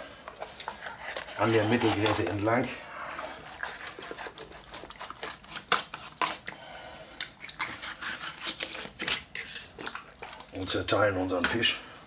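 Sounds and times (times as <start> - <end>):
knife cutting through fish: 0.7 - 2.5, 3.4 - 6.5, 7.4 - 9.7.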